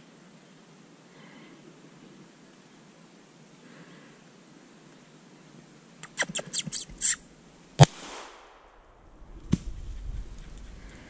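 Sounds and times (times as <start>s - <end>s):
squirrel barking: 6.0s - 7.2s
pistol shot echoing: 7.8s - 8.8s
faint sharp crack: 7.8s - 9.8s.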